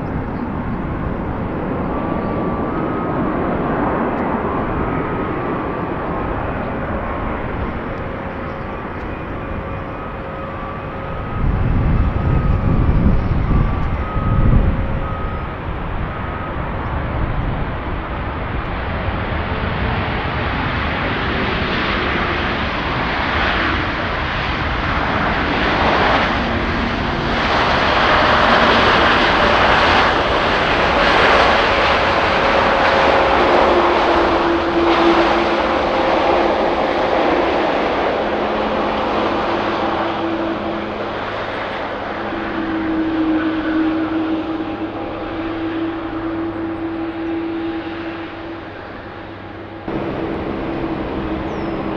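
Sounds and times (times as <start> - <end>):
jet engines: 0.0 - 51.9
low rumble: 49.8 - 51.9.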